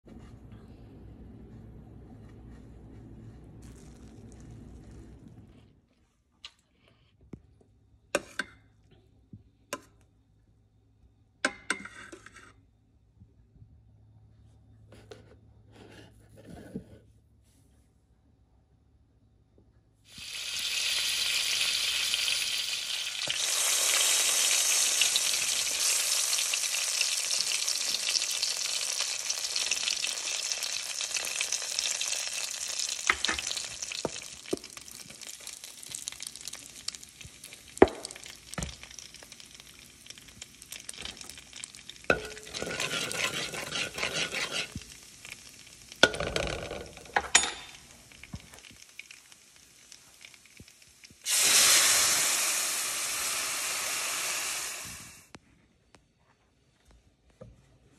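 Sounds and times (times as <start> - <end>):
spices sizzling in hot oil: 3.6 - 5.2, 20.1 - 55.3.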